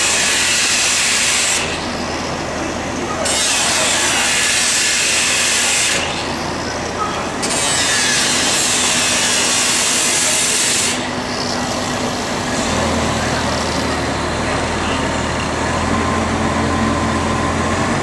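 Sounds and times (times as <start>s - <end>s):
angle grinder cutting metal: 0.0s - 1.8s, 3.2s - 6.5s, 7.4s - 12.0s.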